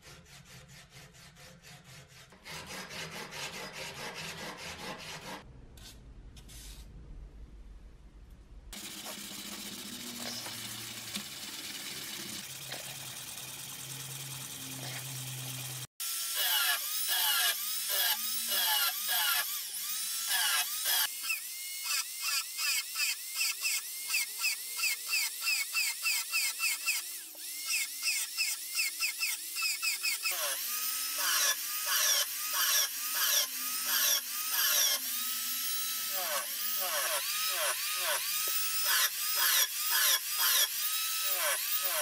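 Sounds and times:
belt power file grinding steel: 0:00.0 - 0:05.4, 0:08.8 - 0:42.0
steel scratching on abrasive paper: 0:09.0 - 0:10.8.

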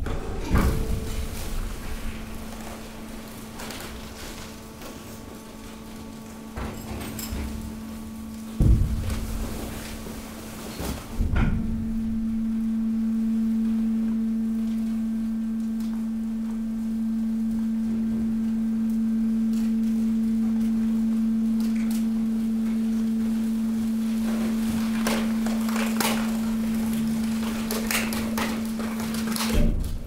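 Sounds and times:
debris knocking and clattering: 0:00.0 - 0:12.3
hydraulic unit humming: 0:00.0 - 0:30.0.

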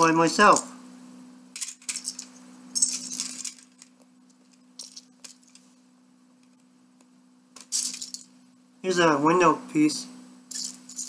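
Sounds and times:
plastic pieces clattering: 0:01.6 - 0:03.9, 0:07.6 - 0:08.3.

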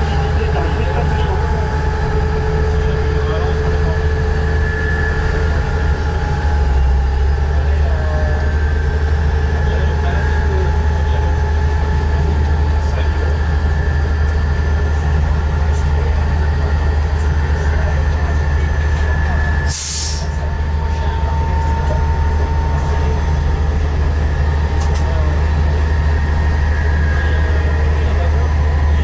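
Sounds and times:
diesel railcar engine humming: 0:00.0 - 0:29.0
short hiss: 0:19.7 - 0:20.3.

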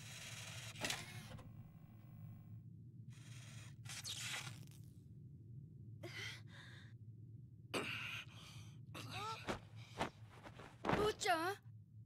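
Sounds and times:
low steady hum: 0:04.6 - 0:12.0.

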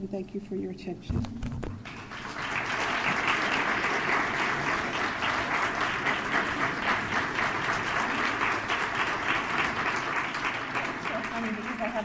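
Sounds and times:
audience applauding: 0:01.8 - 0:12.0.

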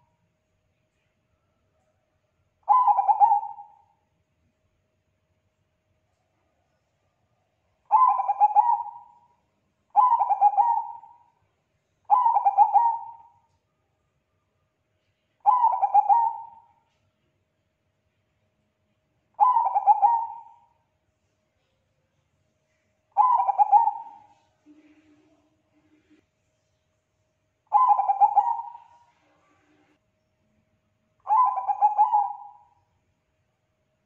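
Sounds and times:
dove cooing: 0:02.7 - 0:03.9, 0:07.9 - 0:09.2, 0:09.9 - 0:11.3, 0:12.1 - 0:13.4, 0:15.4 - 0:16.7, 0:19.4 - 0:20.7, 0:23.2 - 0:25.1, 0:27.7 - 0:29.2, 0:31.3 - 0:32.7.

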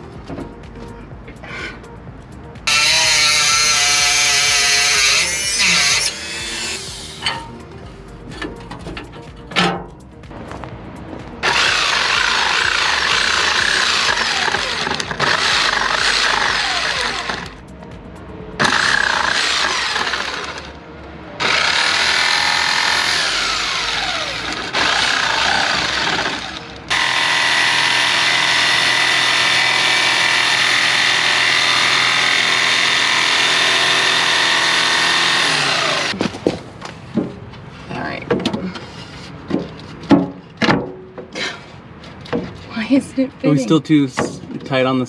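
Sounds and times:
jigsaw sawing plywood: 0:02.7 - 0:07.0, 0:11.4 - 0:17.6, 0:18.6 - 0:20.7, 0:21.4 - 0:36.2.

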